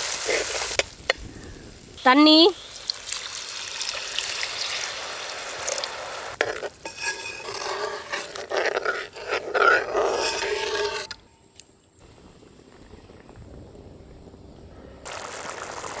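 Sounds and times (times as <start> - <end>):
water pouring into pot: 2.6 - 6.0, 15.1 - 16.0
ladle scraping and knocking pot: 6.4 - 11.2
ladle stirring in metal pot: 6.4 - 11.2.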